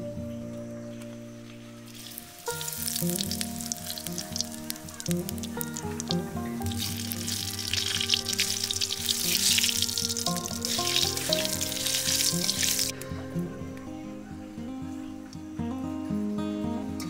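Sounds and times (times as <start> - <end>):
background music: 0.0 - 17.0
seeds sizzling and crackling in oil: 1.8 - 13.1.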